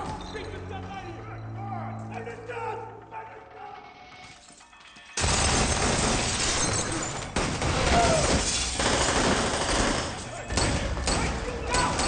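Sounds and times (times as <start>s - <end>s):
glass shattering: 5.2s - 8.8s
gunfire: 7.3s - 12.0s.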